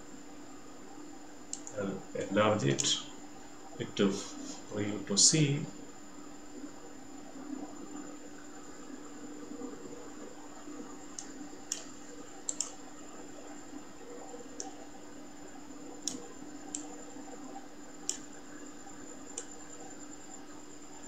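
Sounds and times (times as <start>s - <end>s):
steady background hum: 0.0s - 21.0s
computer mouse clicking: 1.5s - 1.8s, 11.1s - 12.8s, 14.5s - 14.8s, 16.0s - 17.2s, 18.0s - 18.3s, 19.3s - 19.6s.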